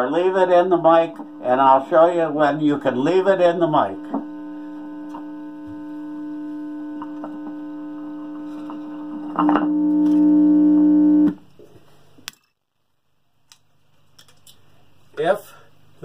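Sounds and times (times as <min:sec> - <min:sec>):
mains hum through speaker: 0:00.0 - 0:12.3.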